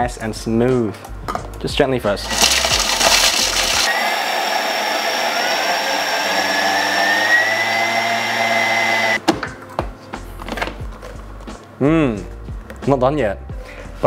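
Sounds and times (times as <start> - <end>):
blender grinding: 2.2 - 9.2.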